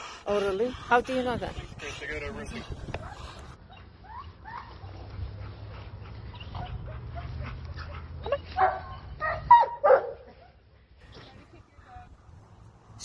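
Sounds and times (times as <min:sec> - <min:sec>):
dog yelping: 0:03.0 - 0:05.0, 0:06.3 - 0:10.2
dog barking: 0:06.5 - 0:10.3.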